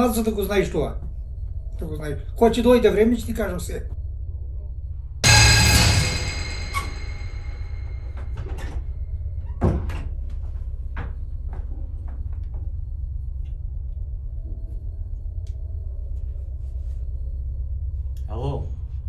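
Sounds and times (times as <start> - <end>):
low hum: 0.8 - 9.4, 10.0 - 19.0
ringing tone: 5.2 - 8.3.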